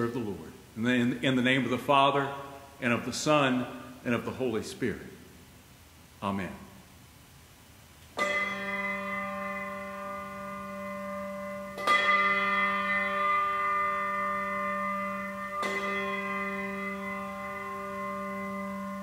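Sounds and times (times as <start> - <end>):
bell ringing: 8.2 - 19.0.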